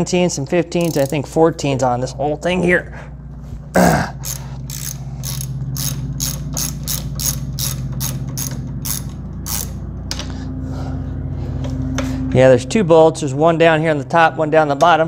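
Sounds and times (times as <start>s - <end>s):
steady low hum: 0.0s - 15.0s
socket ratchet clicking: 0.7s - 1.3s, 4.2s - 10.2s.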